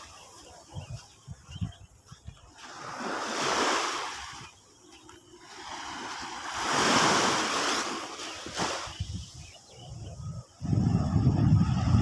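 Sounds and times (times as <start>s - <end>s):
waves washing onto beach: 2.5s - 9.5s.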